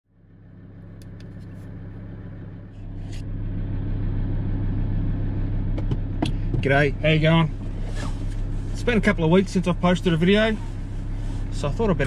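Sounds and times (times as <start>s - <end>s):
car engine idling: 0.1s - 12.0s.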